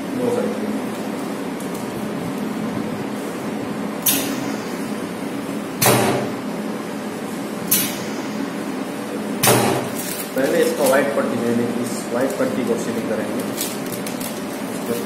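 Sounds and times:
steady background hum: 0.0 - 15.0
heat sealing machine clacks: 4.0 - 4.8, 7.7 - 8.5, 9.4 - 11.2.

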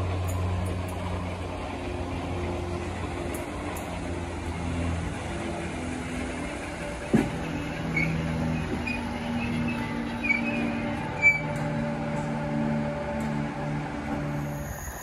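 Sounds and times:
brakes squealing: 0.0 - 15.0
electric train motors humming: 0.0 - 15.0.

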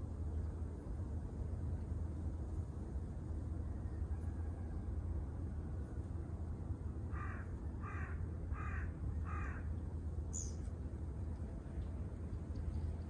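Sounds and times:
crow cawing: 7.1 - 9.7.

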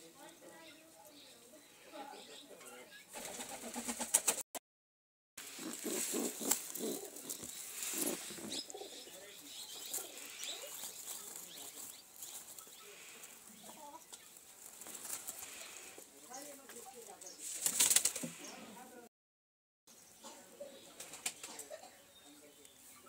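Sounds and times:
pigeon cooing: 5.4 - 14.0
rustling in straw: 5.4 - 18.7.

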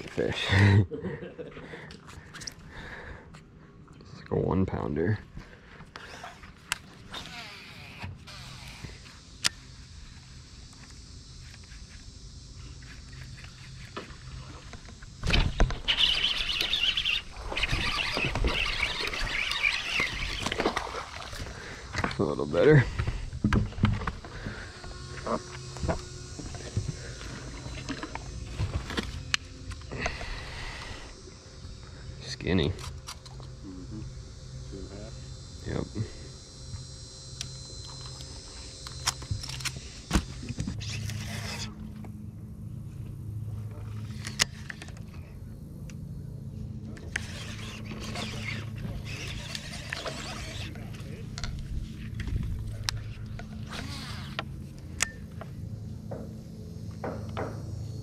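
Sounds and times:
faint low hum: 0.0 - 58.0
fine clicking of reel: 5.9 - 33.6, 34.5 - 42.2, 46.9 - 55.5
scratchy rubbing of fishing reel: 6.0 - 9.2, 11.4 - 14.7, 15.8 - 21.5, 40.8 - 41.8, 47.1 - 51.2, 53.6 - 54.4.

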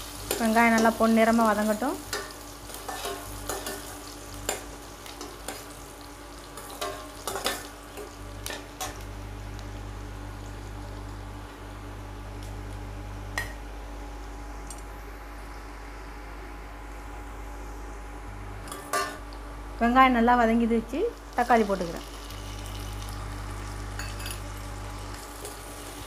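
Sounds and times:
onions sizzling in oil: 0.0 - 13.7, 20.5 - 26.0
low hum: 8.0 - 25.4.

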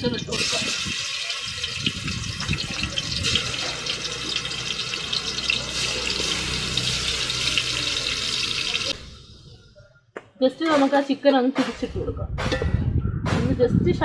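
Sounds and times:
chicken sizzling in hot oil: 0.0 - 9.2.

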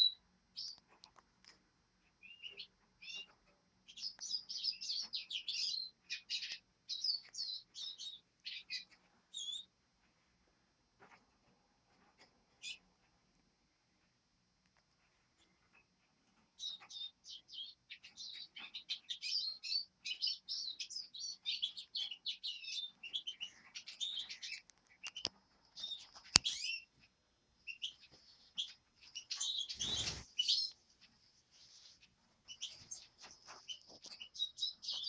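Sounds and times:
songbirds chirping and twittering: 0.0 - 35.0
sharp clicks: 24.6 - 25.4.

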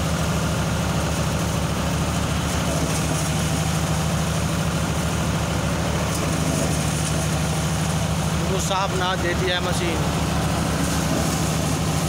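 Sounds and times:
tractor diesel engine running: 0.0 - 12.0
thresher: 2.4 - 4.4, 9.8 - 12.0.

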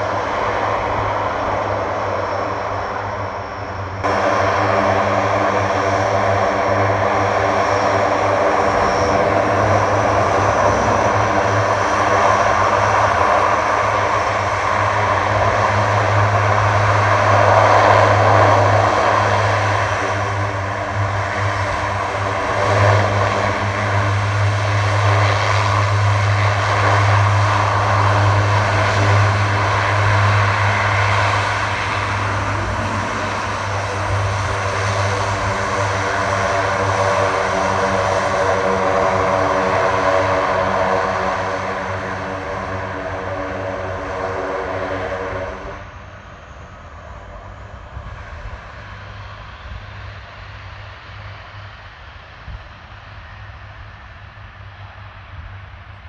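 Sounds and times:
propeller aircraft drone: 0.0 - 56.0
turbine whine: 0.0 - 56.0.

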